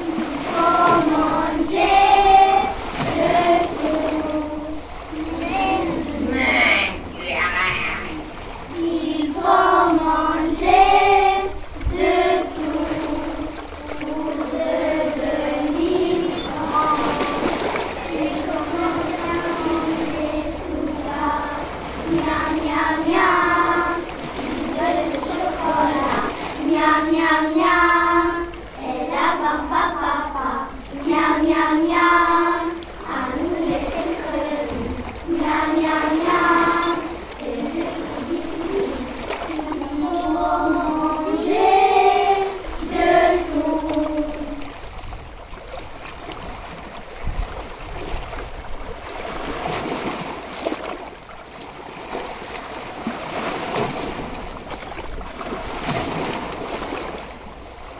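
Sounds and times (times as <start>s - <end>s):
children singing: 0.0s - 44.7s.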